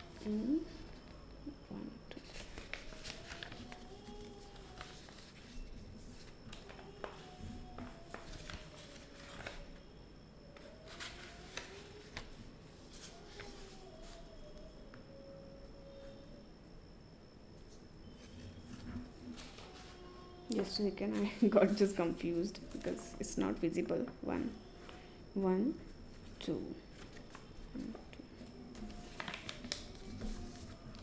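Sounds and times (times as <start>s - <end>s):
paper rustling and crinkling: 2.1s - 9.8s, 10.6s - 14.5s, 18.2s - 20.0s, 26.1s - 31.0s
faint wavering tone: 5.4s - 31.0s.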